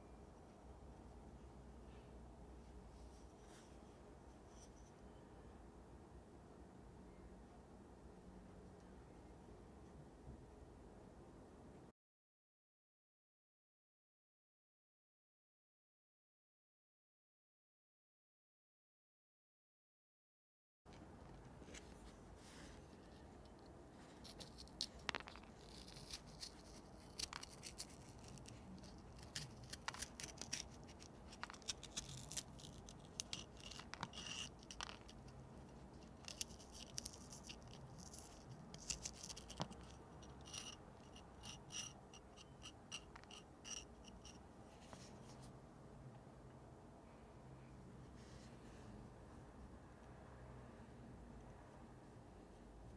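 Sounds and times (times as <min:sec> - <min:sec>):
spoon scraping pepper: 0:23.0 - 0:44.4.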